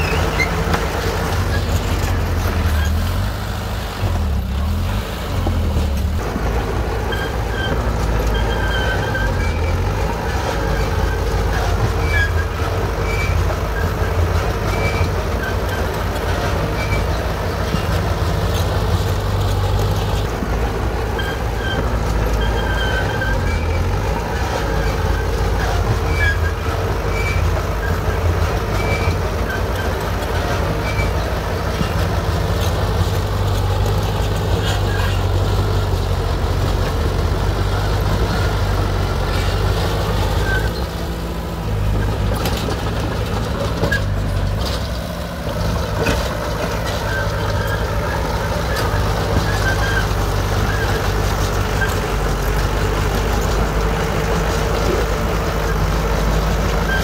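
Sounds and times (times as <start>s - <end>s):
bulldozer diesel engine running: 0.0s - 57.0s.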